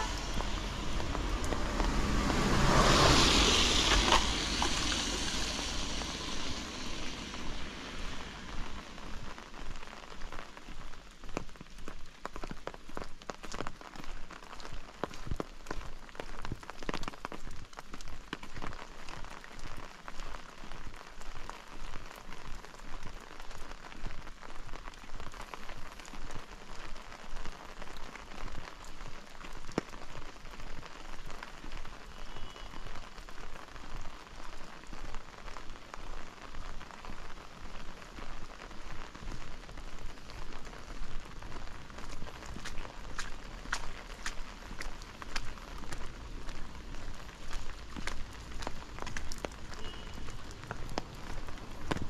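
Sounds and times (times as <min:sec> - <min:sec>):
raindrops ticking: 0:00.0 - 0:52.0
steady rain falling: 0:00.0 - 0:52.0
walking footsteps: 0:41.4 - 0:52.0.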